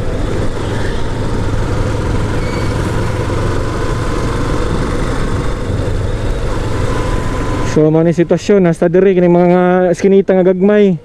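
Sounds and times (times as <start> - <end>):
motorcycle engine running: 0.0 - 8.6
wind and road noise: 0.0 - 11.0.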